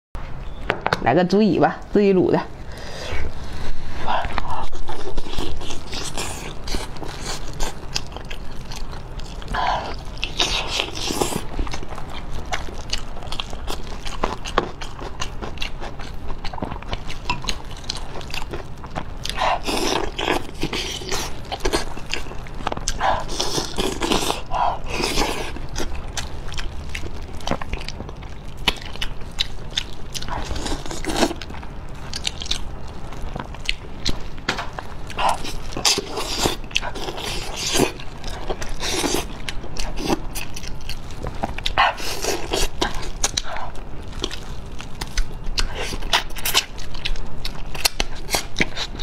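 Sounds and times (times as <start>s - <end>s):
wet chewing and gnawing: 2.6s - 49.0s
lip and teeth clicks: 45.0s - 49.0s.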